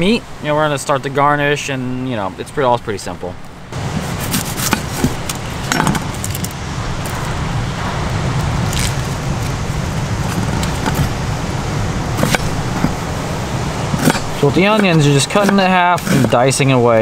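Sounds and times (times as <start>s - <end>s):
steady rushing background: 3.4s - 16.4s
dry onion skin crinkling: 3.9s - 7.3s, 8.4s - 10.9s.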